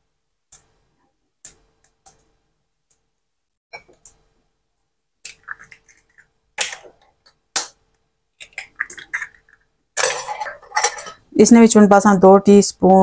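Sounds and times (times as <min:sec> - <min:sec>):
eggshell crackling: 0:05.0 - 0:10.0.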